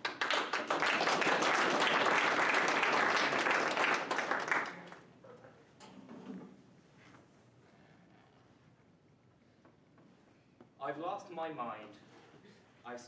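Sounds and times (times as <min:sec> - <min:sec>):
group applauding: 0:00.0 - 0:05.2.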